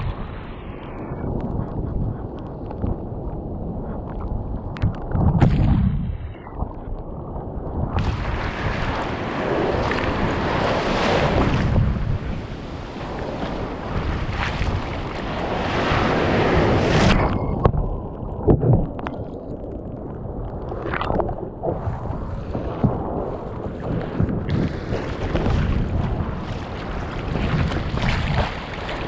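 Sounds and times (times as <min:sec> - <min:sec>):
wind on microphone: 0:00.0 - 0:29.0
ocean surf: 0:08.0 - 0:18.2, 0:20.7 - 0:29.0
water sloshing against hull: 0:08.0 - 0:29.0
paddle strokes splashing: 0:23.9 - 0:29.0.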